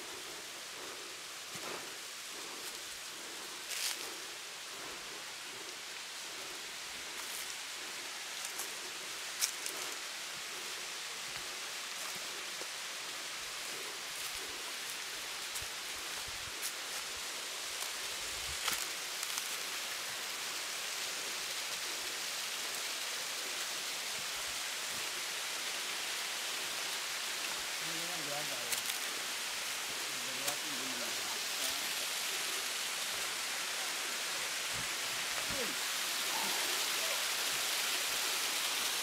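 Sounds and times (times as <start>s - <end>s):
waterfall rushing: 0.0s - 39.0s.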